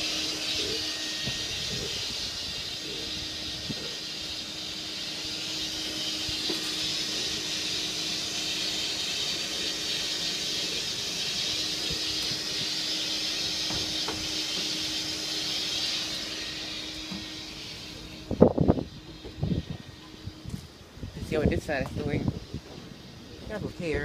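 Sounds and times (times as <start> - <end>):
exhaust fan air rush: 0.0 - 24.0
low fan hum: 0.0 - 24.0.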